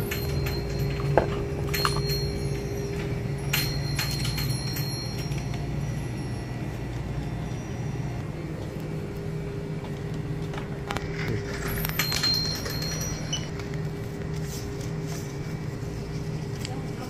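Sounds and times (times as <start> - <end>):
clicks and clinks of handling: 0.0 - 5.9, 9.9 - 14.5
steady low hum: 0.0 - 17.0.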